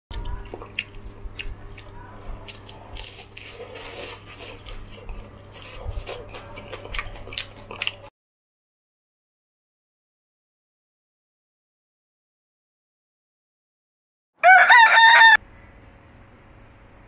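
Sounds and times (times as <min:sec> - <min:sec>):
crunching fried food: 0:00.1 - 0:08.1.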